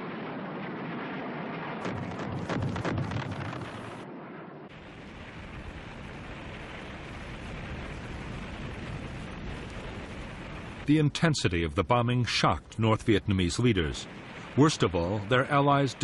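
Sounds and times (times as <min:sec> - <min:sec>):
steady rumble: 0:00.0 - 0:16.0
bombs exploding: 0:01.8 - 0:04.0.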